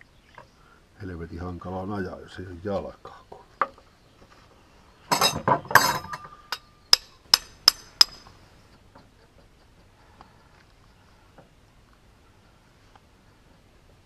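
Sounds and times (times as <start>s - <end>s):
metal parts clattering: 5.1s - 6.3s.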